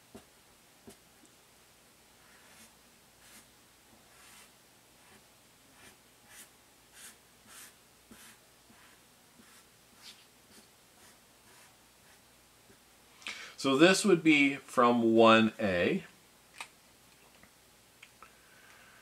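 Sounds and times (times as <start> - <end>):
marker scratching on paper: 2.2 - 3.5, 4.1 - 12.2.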